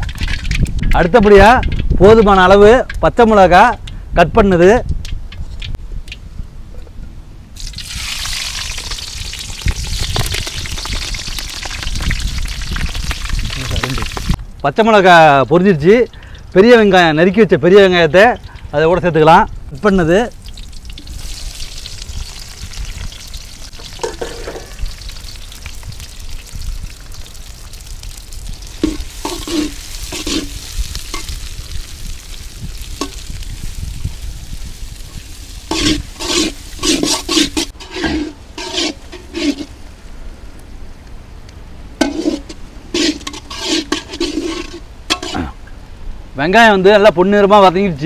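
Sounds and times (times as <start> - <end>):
onions sizzling in oil: 7.6 - 14.4, 20.4 - 40.0, 42.0 - 45.5
metal ladle scraping: 23.8 - 24.8, 28.8 - 31.4, 35.6 - 39.8, 42.0 - 45.6.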